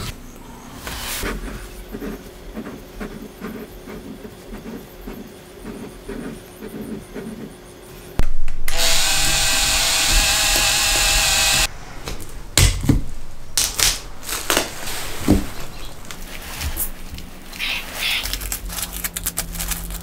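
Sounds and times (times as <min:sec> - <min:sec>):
cordless driver running: 0:08.7 - 0:11.7.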